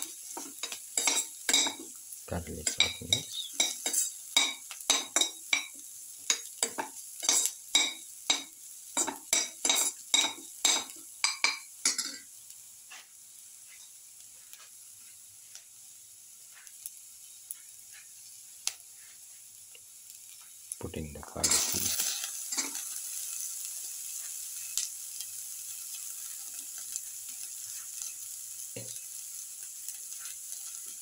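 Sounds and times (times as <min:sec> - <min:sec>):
spatula scraping a pan: 0:00.0 - 0:01.9, 0:02.6 - 0:05.7, 0:06.3 - 0:08.4, 0:26.2 - 0:28.2
onions sizzling: 0:00.0 - 0:31.0.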